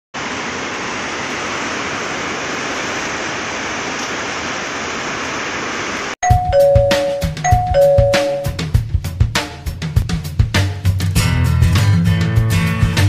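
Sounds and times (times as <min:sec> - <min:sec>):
heavy rain pouring: 0:00.2 - 0:06.7
ringing chime notes: 0:06.2 - 0:08.8
drum beat: 0:06.2 - 0:13.0.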